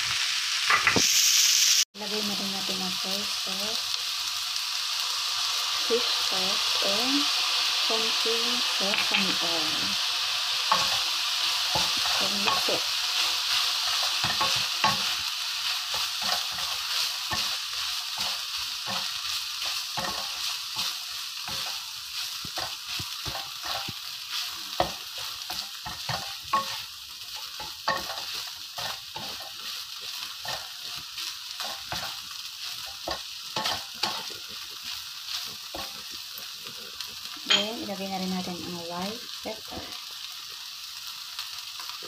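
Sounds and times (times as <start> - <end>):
rice sizzling in a frying pan: 0.0 - 42.0
spatula scraping against pan: 10.7 - 37.7.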